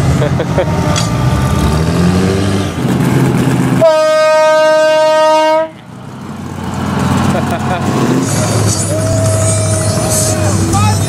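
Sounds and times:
truck engines rumbling: 0.0s - 11.0s
vehicle horn blowing: 3.8s - 5.8s.

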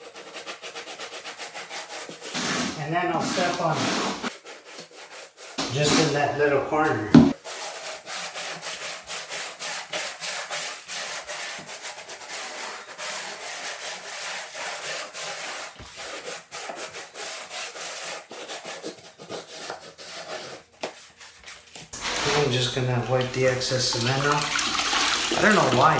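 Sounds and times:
float rubbing over membrane: 0.0s - 25.9s.

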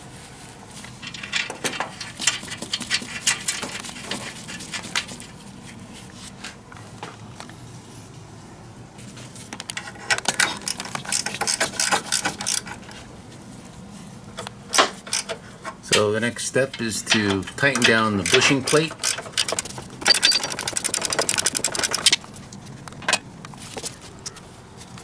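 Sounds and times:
wrench clicking on bolts: 9.7s - 12.8s, 14.7s - 16.1s, 16.7s - 22.2s.

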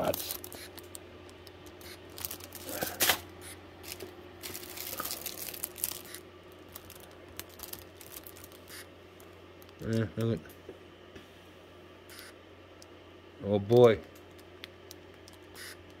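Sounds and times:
plastic bags crinkling: 0.0s - 1.0s, 1.6s - 3.2s, 3.8s - 9.8s.

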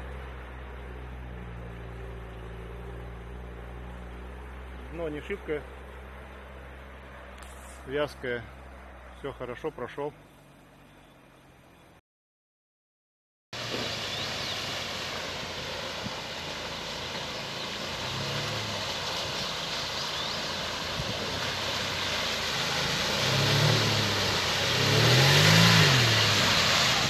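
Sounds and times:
car engine revving: 13.6s - 27.0s.

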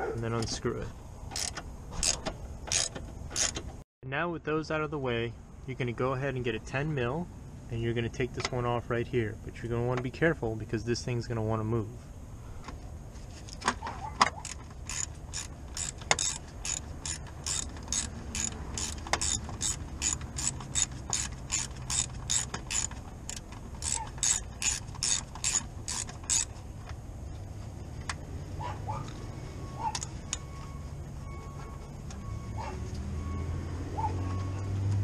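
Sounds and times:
socket ratchet clicking: 1.3s - 3.7s, 14.3s - 26.6s.

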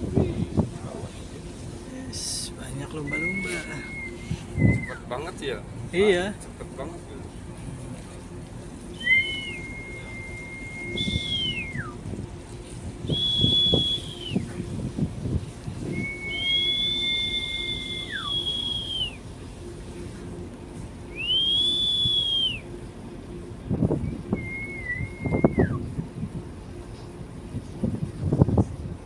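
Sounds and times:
low rumble: 0.0s - 29.0s
people whistling held notes: 3.0s - 5.0s, 9.0s - 12.0s, 13.1s - 14.5s, 15.9s - 19.2s, 21.1s - 22.6s, 24.1s - 25.8s.

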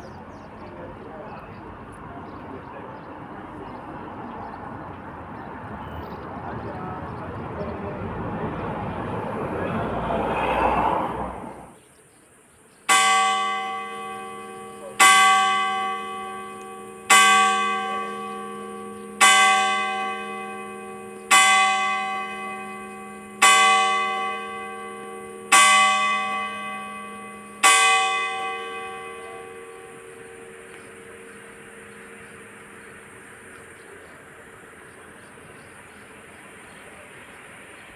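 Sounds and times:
church bell tolling: 12.9s - 33.6s.

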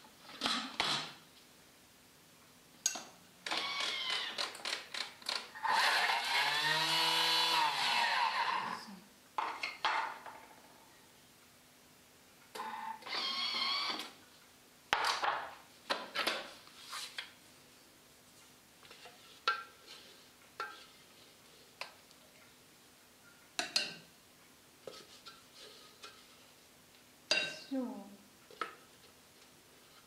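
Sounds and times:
spatula scraping squeal: 7.7s - 8.8s.

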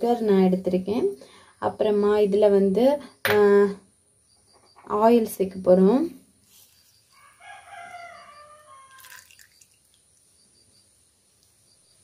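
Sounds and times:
rooster crowing: 7.1s - 9.4s
oil trickling into bowl: 8.8s - 10.5s.

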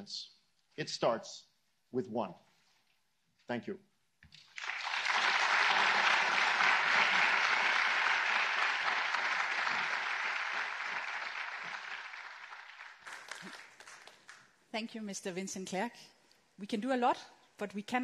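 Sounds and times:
audience applauding: 4.4s - 14.5s.

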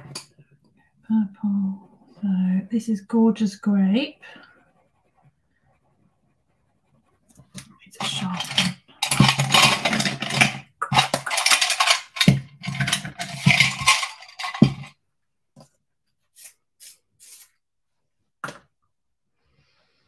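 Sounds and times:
pencil scratching on cardstock: 3.4s - 8.4s.

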